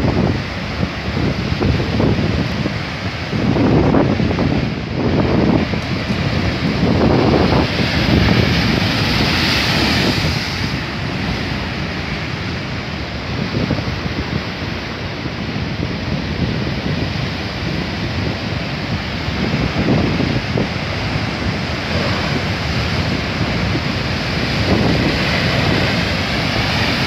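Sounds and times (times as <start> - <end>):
ocean surf crashing on rocks: 0.0 - 27.0
wind buffeting microphone: 0.0 - 27.0.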